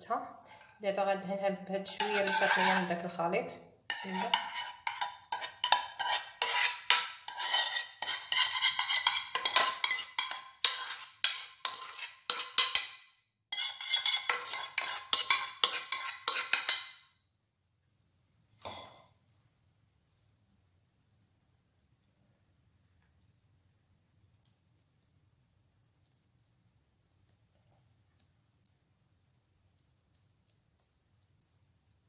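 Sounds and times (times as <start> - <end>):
metal spoon scraping a pan: 1.7 - 3.2, 3.9 - 17.1.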